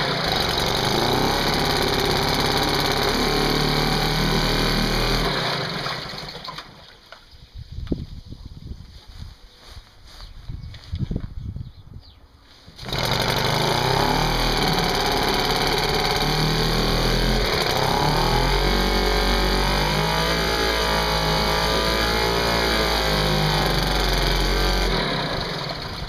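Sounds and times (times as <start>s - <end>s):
outboard motor running: 0.0s - 6.5s, 12.8s - 26.0s
rope pull starting outboard: 12.8s - 26.0s.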